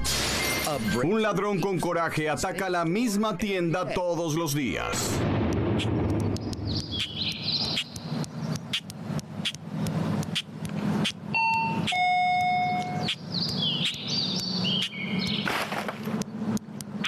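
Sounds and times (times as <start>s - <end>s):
high chirps stepping down: 5.6s - 17.0s
two-note electronic door chime: 11.4s - 13.1s.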